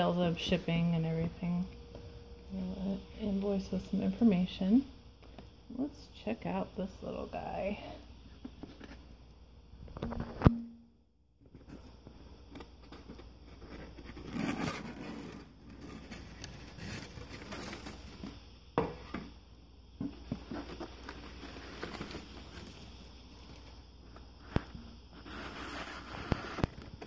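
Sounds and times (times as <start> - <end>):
crumpled newspaper rustling: 13.5 - 18.4, 20.2 - 26.8.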